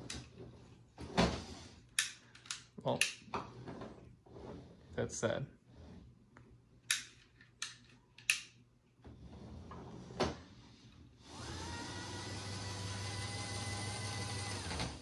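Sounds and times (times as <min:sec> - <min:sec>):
small electric motor whining: 0:11.2 - 0:15.0.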